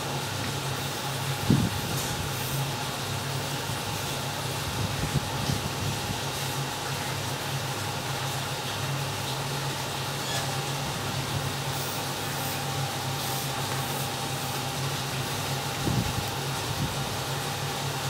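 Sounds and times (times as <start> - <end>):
machine hum with hiss: 0.0 - 18.0.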